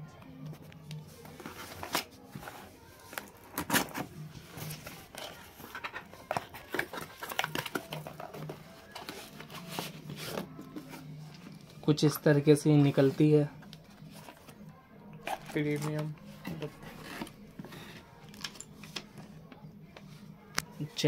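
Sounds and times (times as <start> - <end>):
cardboard and tape crackling: 1.2 - 11.7.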